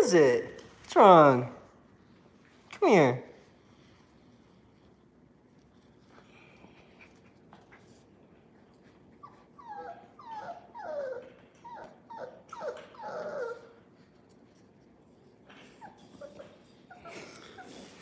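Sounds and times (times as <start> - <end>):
puppy whimpering: 9.1 - 14.0, 15.5 - 18.0.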